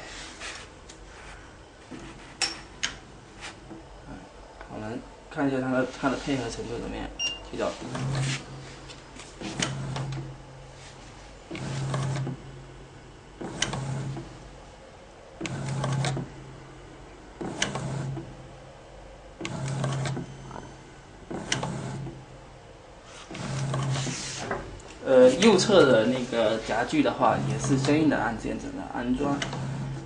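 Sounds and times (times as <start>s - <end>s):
drive motor humming: 23.3s - 30.0s.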